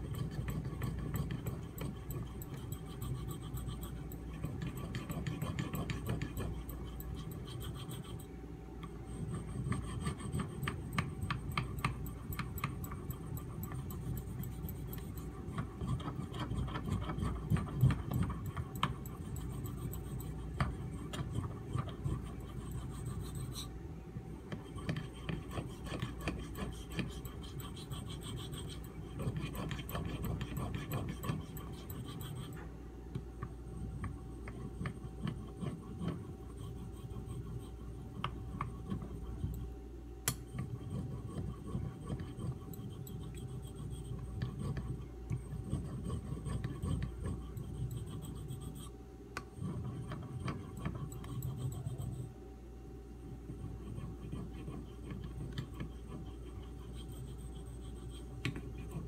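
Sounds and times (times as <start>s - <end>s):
knife scraping on whetstone: 0.0s - 8.2s, 24.8s - 32.6s.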